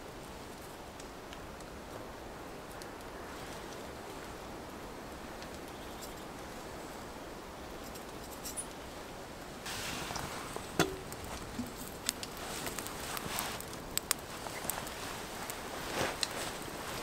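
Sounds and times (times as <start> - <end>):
wood fire crackling: 0.0 - 17.0
kettle clinking on grill: 10.7 - 11.9.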